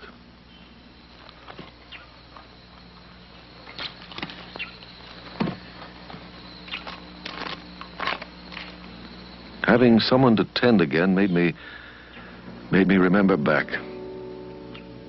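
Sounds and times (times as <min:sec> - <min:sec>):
rotten wood crackling and snapping: 0:03.7 - 0:08.8.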